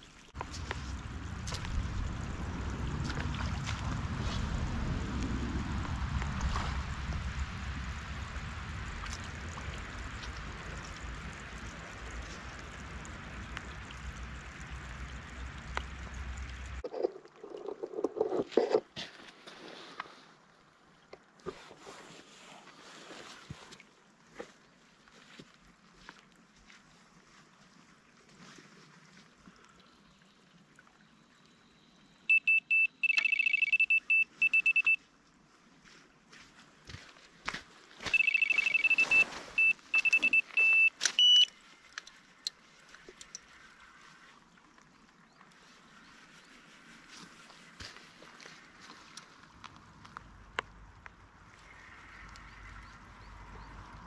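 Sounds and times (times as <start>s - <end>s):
rain tapping near microphone: 0.0s - 16.8s
small waves lapping: 0.0s - 54.0s
wind buffeting microphone: 0.4s - 13.5s
electronic bite alarm beeping: 32.3s - 35.0s, 38.1s - 41.5s.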